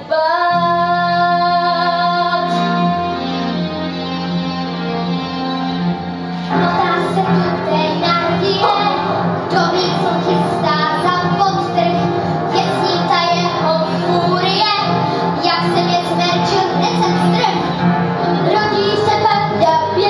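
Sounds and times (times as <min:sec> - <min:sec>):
instrumental accompaniment: 0:00.5 - 0:20.0
children's choir singing: 0:06.4 - 0:17.8.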